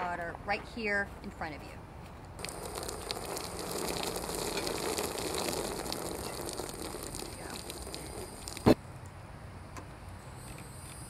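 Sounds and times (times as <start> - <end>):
water pouring and splashing: 2.4 - 8.8.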